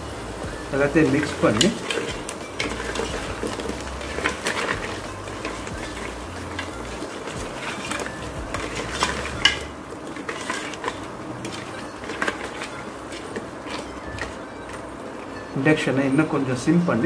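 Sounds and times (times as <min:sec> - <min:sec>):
ladle stirring thick gravy: 0:00.0 - 0:15.4.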